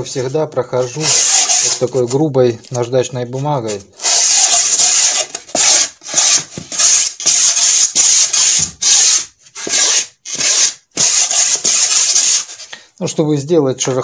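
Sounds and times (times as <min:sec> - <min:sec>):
sandpaper rasping on foam board: 0:00.8 - 0:02.0, 0:04.0 - 0:12.7.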